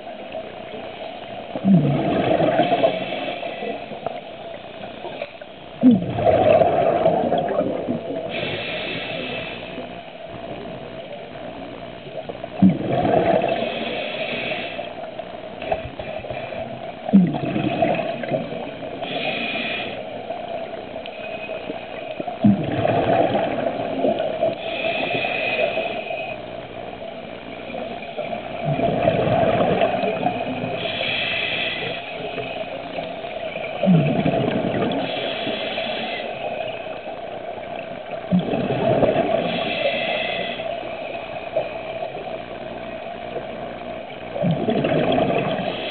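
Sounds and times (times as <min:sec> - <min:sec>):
exhaled bubbles underwater: 0:00.0 - 0:45.9
steady hum: 0:00.0 - 0:45.9
diver inhaling through regulator: 0:01.8 - 0:04.2, 0:06.4 - 0:10.0, 0:13.3 - 0:15.1, 0:15.8 - 0:20.3, 0:24.4 - 0:26.4, 0:28.7 - 0:37.1, 0:39.2 - 0:42.2, 0:45.5 - 0:45.9.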